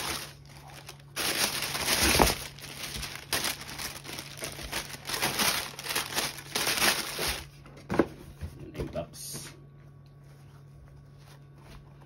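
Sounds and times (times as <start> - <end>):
tissue paper rustling and crinkling: 0.0 - 7.6.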